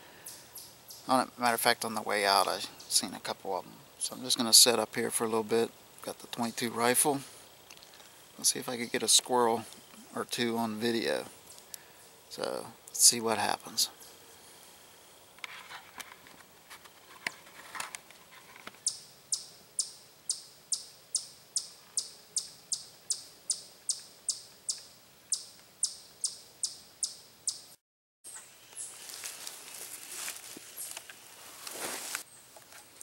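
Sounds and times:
chipmunk chirping alarm call: 18.8 - 27.7.

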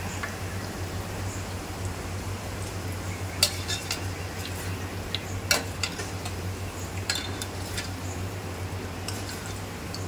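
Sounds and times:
steady low hum: 0.0 - 10.0
skimmer scraping metal pot: 3.4 - 4.8, 5.4 - 6.4, 7.0 - 8.0, 9.0 - 10.0.

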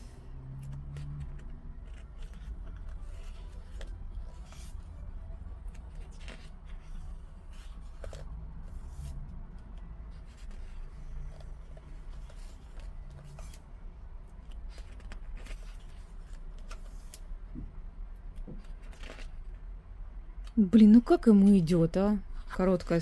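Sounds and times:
glossy pages turning: 0.6 - 9.2, 14.4 - 17.2, 18.4 - 19.5.

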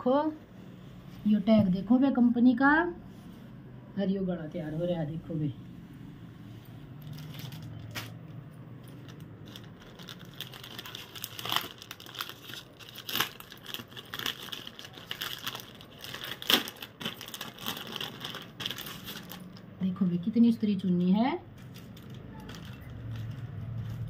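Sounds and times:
plastic bag crinkling: 6.9 - 19.7, 21.6 - 24.0.

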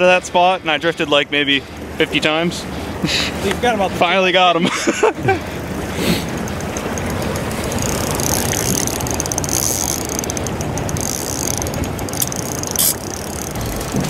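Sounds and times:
fishing reel ratcheting click: 5.7 - 13.9
sharp click: 6.4 - 13.6.

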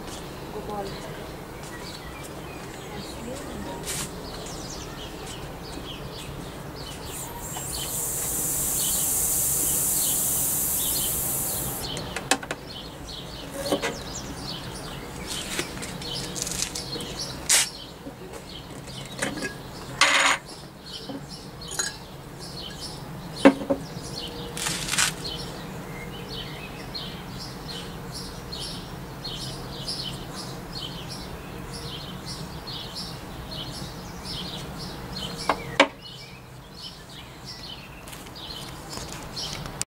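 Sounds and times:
birds chirping: 0.0 - 39.6
air hissing into vacuum chamber: 7.0 - 12.0
glass jar clinks and knocks: 21.7 - 22.0.

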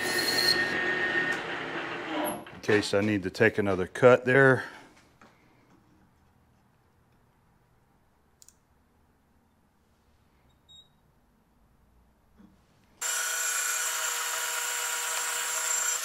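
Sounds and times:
lathe gear whine: 13.0 - 16.0.

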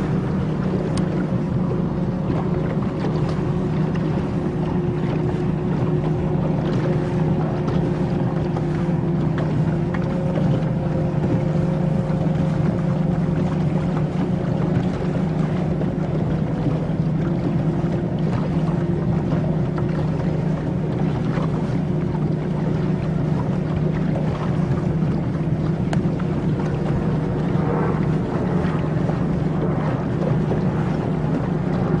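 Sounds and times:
motorboat engine droning: 0.0 - 32.0
water rushing: 0.0 - 32.0
wind: 0.0 - 32.0.

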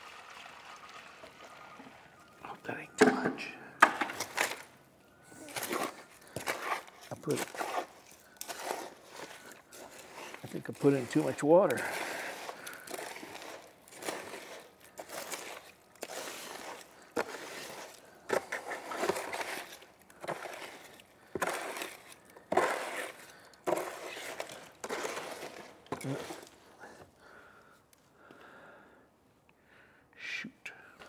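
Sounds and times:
wet concrete scraping and sloshing: 0.0 - 2.2, 5.4 - 26.8.

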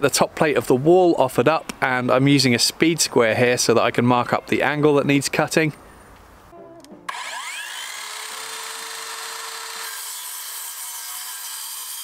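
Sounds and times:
circular saw cutting timber: 7.1 - 12.0.

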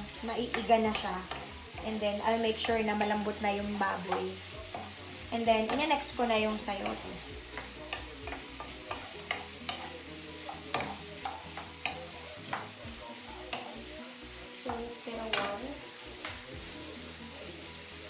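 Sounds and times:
spatula scraping a frying pan: 0.0 - 14.4
food sizzling: 0.0 - 18.0.

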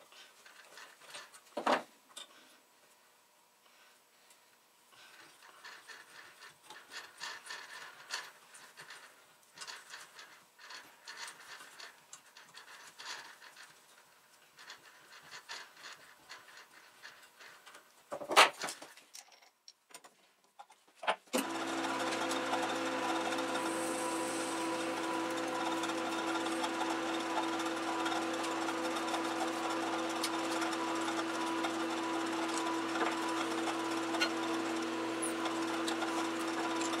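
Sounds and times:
lathe motor running: 21.4 - 37.0.

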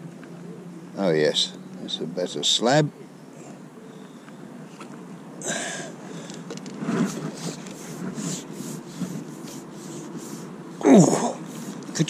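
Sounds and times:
net handle rubbing and scraping: 6.2 - 12.0.

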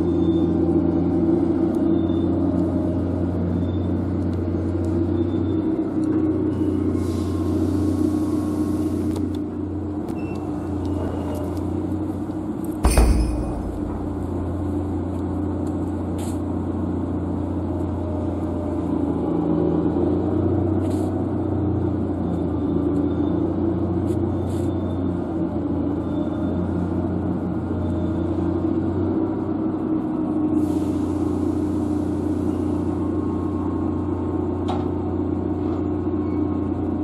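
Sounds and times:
low engine rumble: 0.0 - 37.0.

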